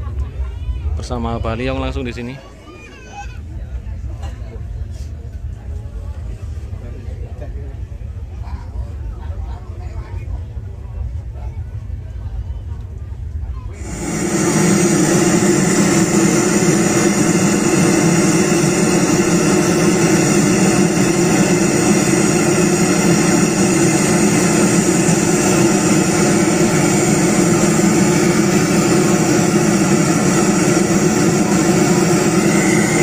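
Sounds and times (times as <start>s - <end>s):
loud steady drone from speakers: 13.7s - 33.0s.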